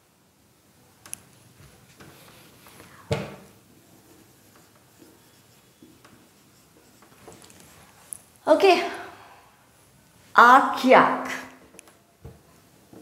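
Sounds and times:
marker scratching on whiteboard: 0:03.7 - 0:08.1.

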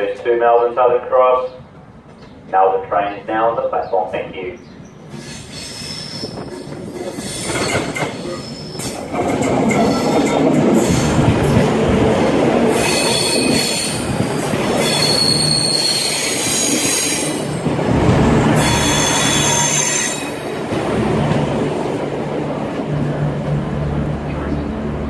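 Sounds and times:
diesel train rumbling: 0:00.0 - 0:25.0
train brakes squealing: 0:05.1 - 0:09.0, 0:12.8 - 0:14.0, 0:14.8 - 0:17.5, 0:18.6 - 0:20.4.

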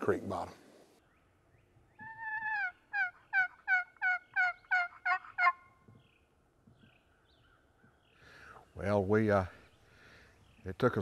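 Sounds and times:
turkey call yelping: 0:02.0 - 0:05.8.

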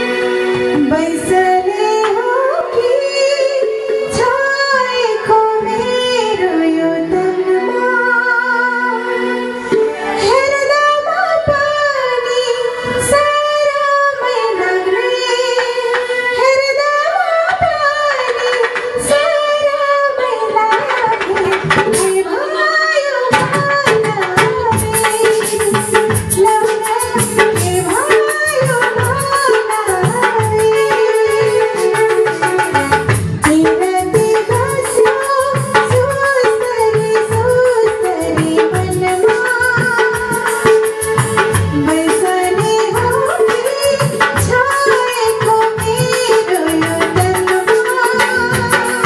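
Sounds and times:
keyboard: 0:00.0 - 0:49.0
woman singing through microphone: 0:00.0 - 0:49.0
drum strokes: 0:20.5 - 0:22.5, 0:23.1 - 0:49.0.

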